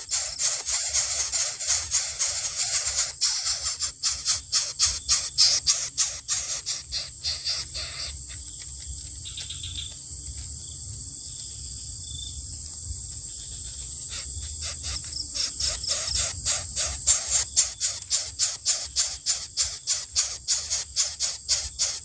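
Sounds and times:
high-pitched insect drone: 0.0s - 8.5s, 13.1s - 22.0s.

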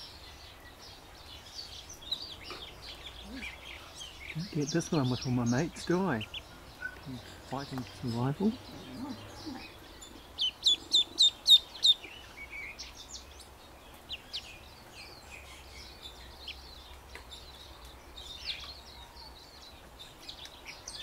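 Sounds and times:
duckling peeping: 1.9s - 13.0s, 13.9s - 16.6s.

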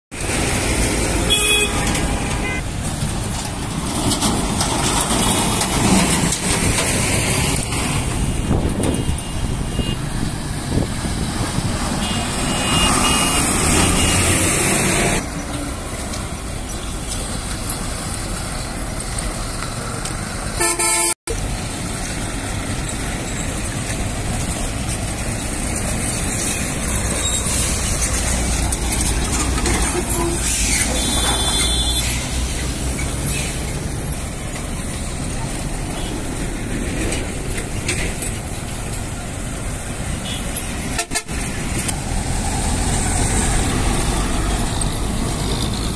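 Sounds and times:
trucks and vehicles passing: 0.1s - 45.9s
vehicle horns tooting: 1.2s - 2.6s, 8.5s - 10.2s, 12.0s - 15.2s, 20.6s - 21.2s, 29.8s - 32.3s, 40.2s - 41.5s.

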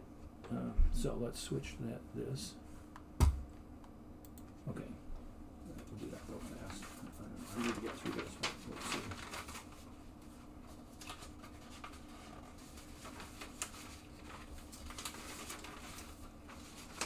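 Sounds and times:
faint steady hum: 0.0s - 17.0s
paper being handled and flipped: 6.2s - 17.0s.

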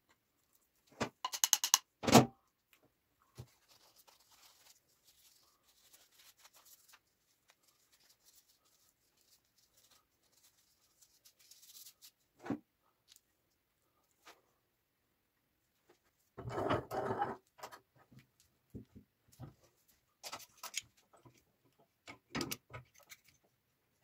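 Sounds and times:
paper towel rustling on a knife: 3.4s - 12.2s.

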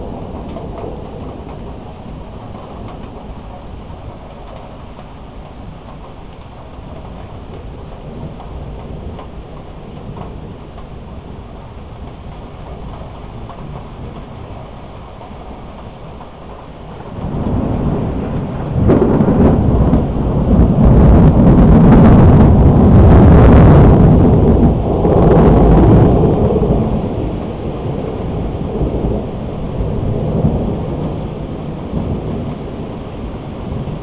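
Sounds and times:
thunder rumbling: 0.0s - 34.0s
sharp thunder crack: 17.0s - 34.0s.

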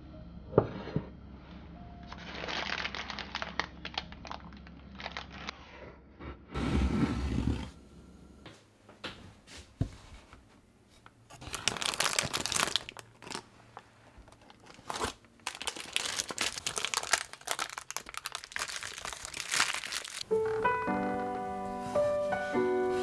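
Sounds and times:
baking paper crinkling and tearing: 2.1s - 5.6s, 11.3s - 20.3s.

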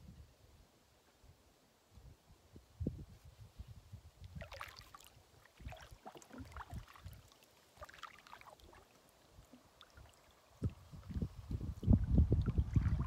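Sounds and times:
water splashes and drips: 4.2s - 13.0s
paddle dipping into water: 4.3s - 11.2s, 11.9s - 13.0s.

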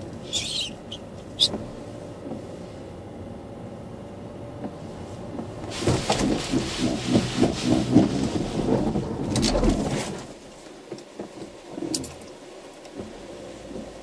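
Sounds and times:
car engine and road hum: 0.0s - 14.0s
water drumming on car body: 5.7s - 9.2s.

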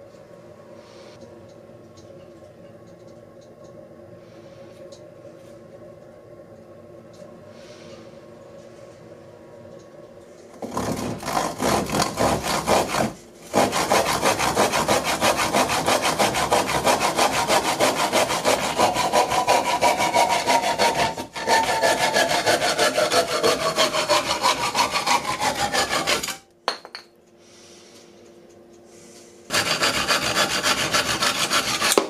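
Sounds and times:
hand saw cutting wood: 10.6s - 26.4s, 29.5s - 32.0s.

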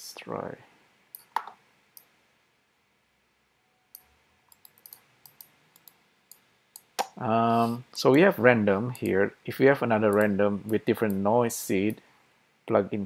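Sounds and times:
mouse and keyboard clicks: 1.2s - 2.1s, 4.0s - 7.2s.

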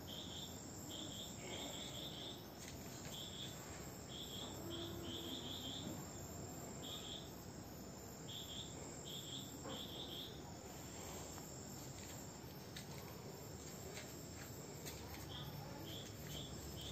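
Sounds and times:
crickets chirping: 0.0s - 16.9s.

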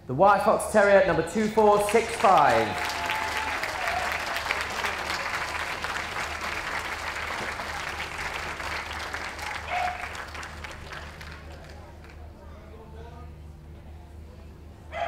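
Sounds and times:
audience applauding: 1.4s - 12.3s.

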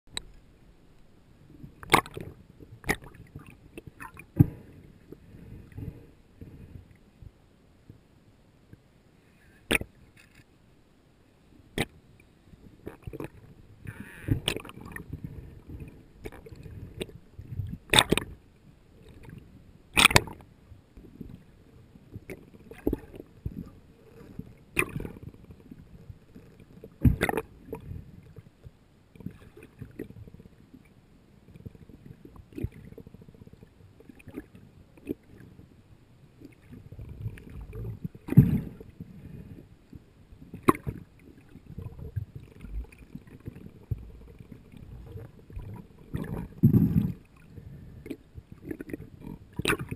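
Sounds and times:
low underwater rumble: 31.4s - 49.9s.

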